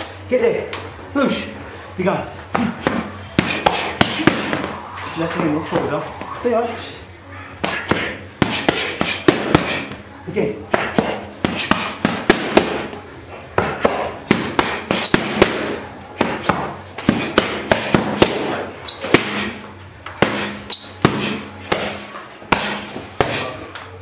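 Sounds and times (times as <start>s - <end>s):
boxing gloves smacking focus mitts: 7.6s - 10.0s, 10.7s - 23.6s.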